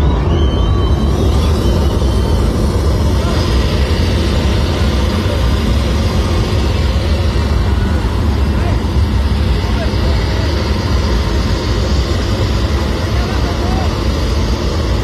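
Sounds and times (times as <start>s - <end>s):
deep bass rumble from sound system: 0.0s - 15.0s.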